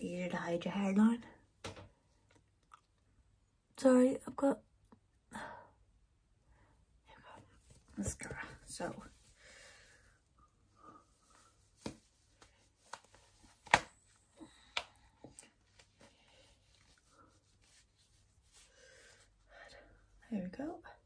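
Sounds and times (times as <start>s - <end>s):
soft rustling of wig cap: 7.4s - 19.5s.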